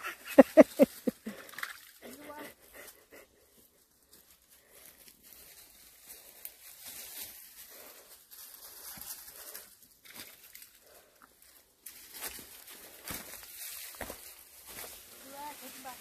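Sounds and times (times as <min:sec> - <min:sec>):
dry leaves crunching underfoot: 0:04.1 - 0:11.0, 0:11.6 - 0:16.0.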